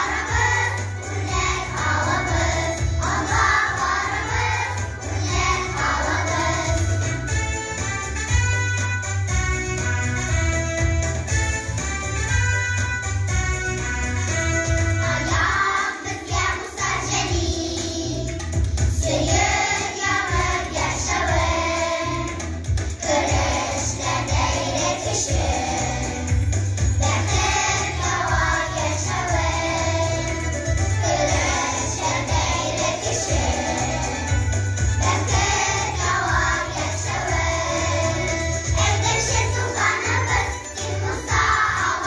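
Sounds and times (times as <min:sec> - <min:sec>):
children's choir singing: 0:00.0 - 0:07.2, 0:15.1 - 0:18.4, 0:19.0 - 0:26.4, 0:27.0 - 0:42.0
instrumental accompaniment with bass: 0:00.0 - 0:42.0.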